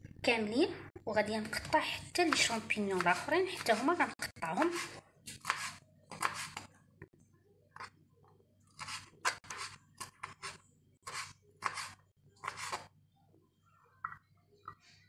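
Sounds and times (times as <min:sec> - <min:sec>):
knife chopping on cutting board: 0:04.6 - 0:06.7.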